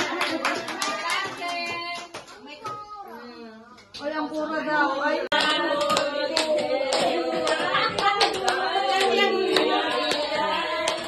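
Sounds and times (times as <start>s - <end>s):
hands clapping: 0.0s - 2.8s, 5.3s - 11.0s
group singing: 4.4s - 11.0s.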